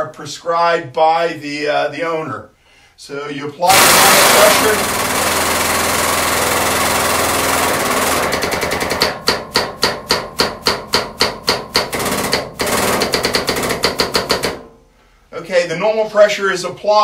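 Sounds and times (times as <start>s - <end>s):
hydraulic pump running: 3.7s - 10.3s, 11.6s - 14.6s
rapid sharp pump strokes: 3.7s - 14.6s.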